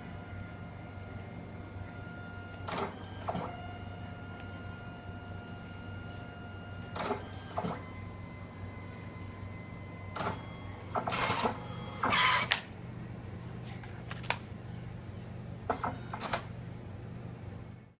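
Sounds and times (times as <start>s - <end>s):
photo printer running: 0.0s - 12.7s, 15.7s - 16.5s
printer whirring: 0.0s - 12.7s, 15.6s - 16.5s
steady low hum: 0.0s - 18.0s.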